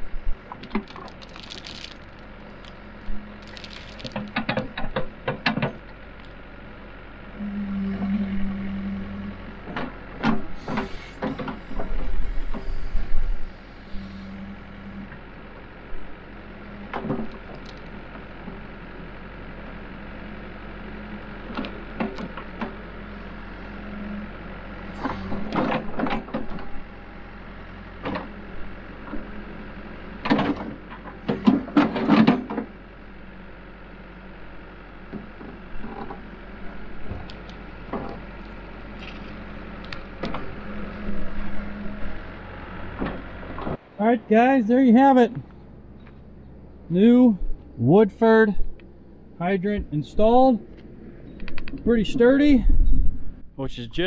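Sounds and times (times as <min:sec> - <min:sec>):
backhoe engine running: 0:00.0 - 0:54.0
falling dirt and stones: 0:00.5 - 0:05.0.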